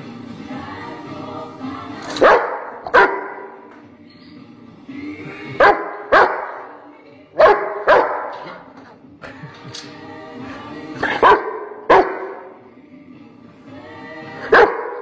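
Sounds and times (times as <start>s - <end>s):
faint music: 0.0s - 15.0s
dog barking deeply: 2.2s - 3.4s, 5.6s - 6.6s, 7.4s - 8.5s, 11.0s - 12.4s.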